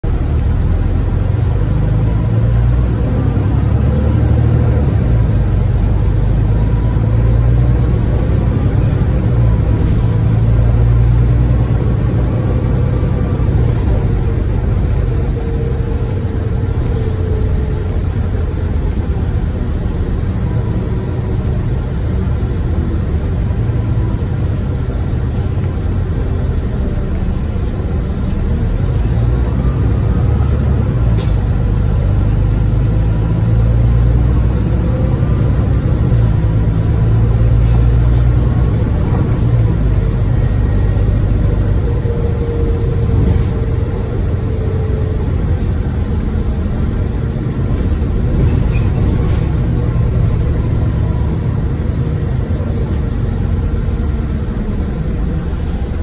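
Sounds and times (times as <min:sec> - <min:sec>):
bus engine low rumble: 0:00.0 - 0:56.0
drivetrain whine: 0:00.0 - 0:56.0.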